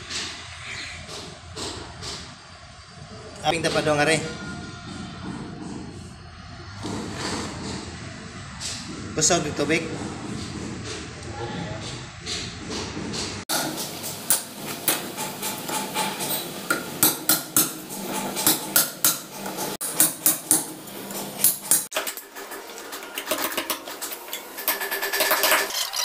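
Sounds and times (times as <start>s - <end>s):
hammer striking steel chisel: 13.5s - 20.8s.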